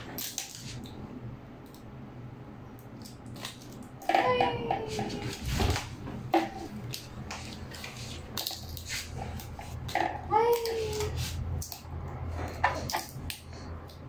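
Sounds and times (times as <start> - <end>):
plastic toys clattering: 3.0 - 11.8, 12.4 - 14.0
baby vocal sound: 4.1 - 5.5, 10.1 - 11.2.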